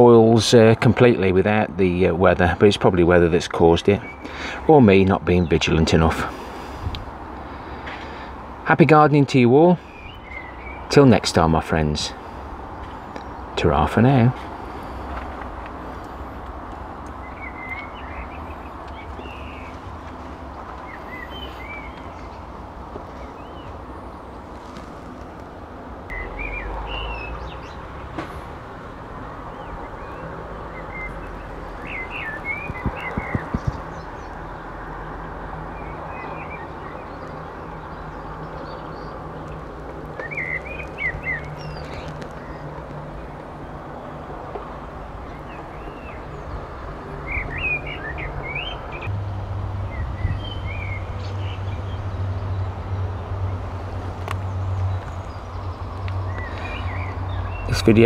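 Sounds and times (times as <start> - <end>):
small birds chirping: 1.5 - 49.1, 49.9 - 58.0
distant machinery drone: 9.8 - 58.0.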